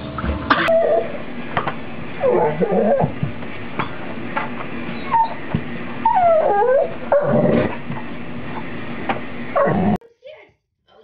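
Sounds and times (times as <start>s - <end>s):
dog whining and yipping: 0.7s - 1.2s, 2.2s - 3.2s, 5.0s - 5.4s, 6.0s - 7.7s.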